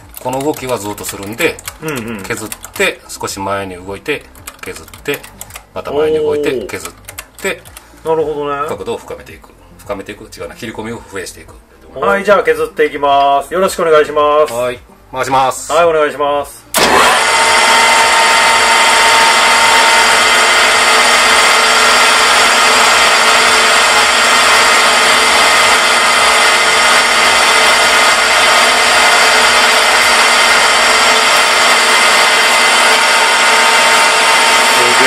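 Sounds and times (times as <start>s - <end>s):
lathe motor whine: 16.7s - 35.0s.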